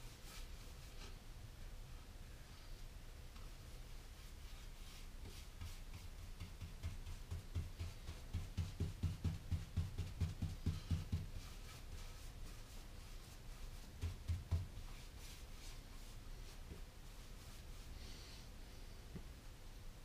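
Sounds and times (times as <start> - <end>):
paintbrush stroking on wood: 3.9 - 8.8, 10.9 - 18.0.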